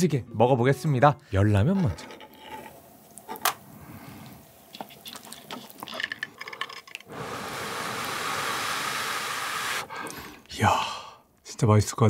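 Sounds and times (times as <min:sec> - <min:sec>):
dripping: 0:02.2 - 0:10.5
person blowing on food: 0:07.1 - 0:10.1.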